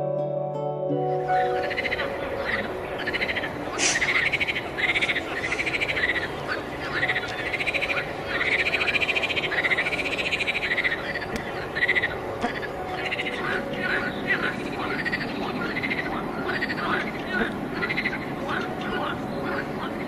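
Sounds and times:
frogs calling: 0:01.3 - 0:20.0.

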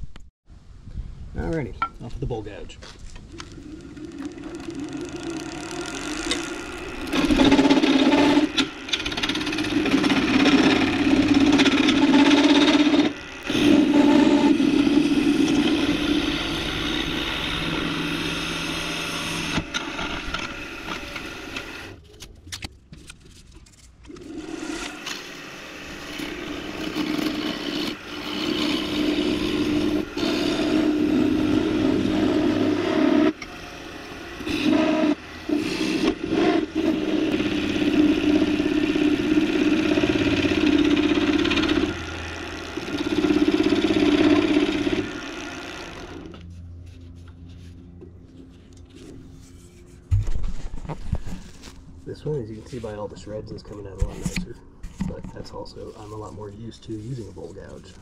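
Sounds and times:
wood lathe humming: 0:03.3 - 0:22.0, 0:24.1 - 0:47.0
gouge scraping wood: 0:04.1 - 0:20.3, 0:26.0 - 0:33.3, 0:34.4 - 0:42.0.

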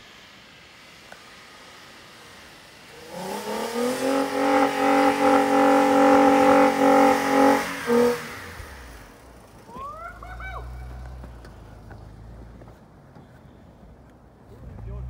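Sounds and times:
truck engine revving: 0:02.8 - 0:12.6.

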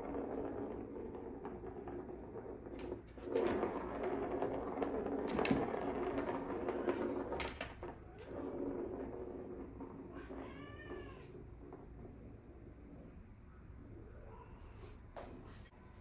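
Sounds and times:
ball clacking against plastic: 0:00.0 - 0:13.0
plastic ball rolling in track: 0:00.0 - 0:14.0
cat meowing: 0:10.1 - 0:11.4.

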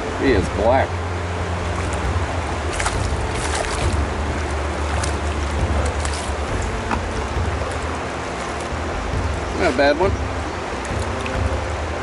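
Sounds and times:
flowing river water: 0:00.0 - 0:12.0
wind rumble on microphone: 0:00.0 - 0:12.0.

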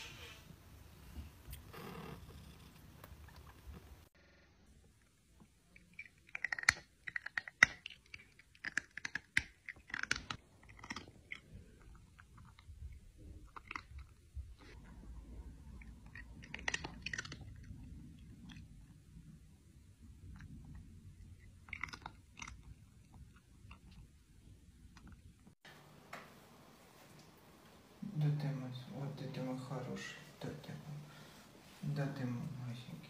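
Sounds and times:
cat chewing crunchy food: 0:05.8 - 0:19.0, 0:20.2 - 0:25.3.

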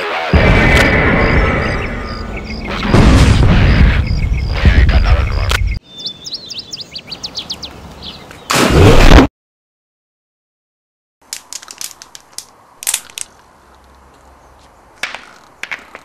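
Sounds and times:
loud rumbling noise: 0:00.0 - 0:05.5
small birds chirping: 0:01.2 - 0:02.9, 0:03.7 - 0:08.5.

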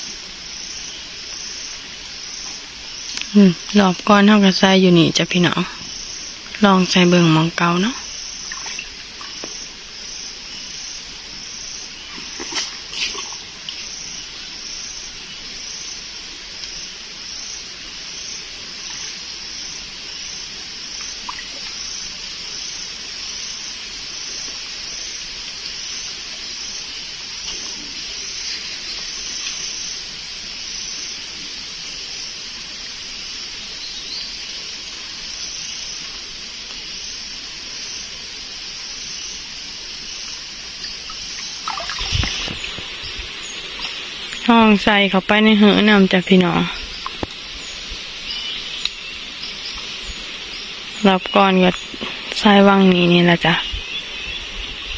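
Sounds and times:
water sloshing and trickling: 0:00.0 - 0:17.1, 0:17.7 - 0:23.2, 0:39.6 - 0:53.6
insects chirring: 0:00.0 - 0:54.9.

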